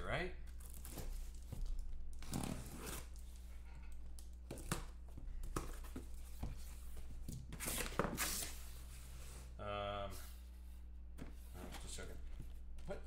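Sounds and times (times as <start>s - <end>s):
packing tape tearing: 2.1s - 3.2s.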